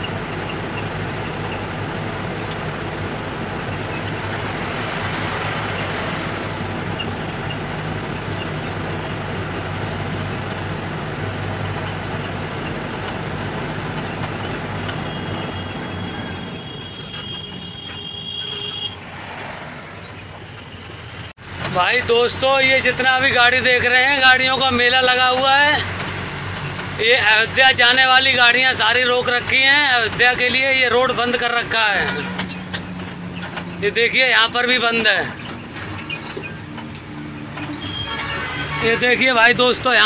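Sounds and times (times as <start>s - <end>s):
brake squeal: 0.0s - 40.0s
road noise: 0.0s - 40.0s
truck engine drone: 0.0s - 40.0s.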